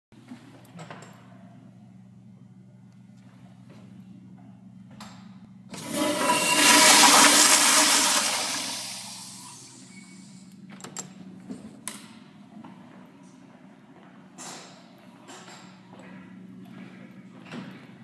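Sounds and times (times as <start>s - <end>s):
toilet flushing: 5.7s - 10.4s.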